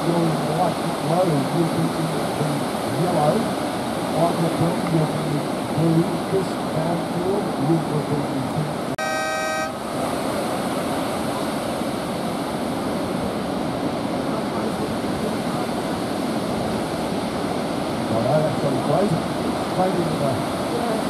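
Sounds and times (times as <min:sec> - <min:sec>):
breaking surf: 0:00.0 - 0:21.0
short horn blast: 0:09.0 - 0:09.8.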